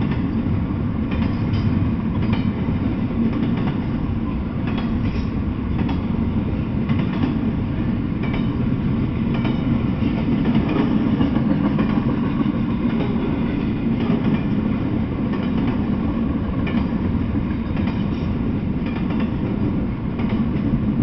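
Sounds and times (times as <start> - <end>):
freight train rumble: 0.0 - 21.0
wheels clicking over rail joints: 4.6 - 6.1, 8.2 - 20.8.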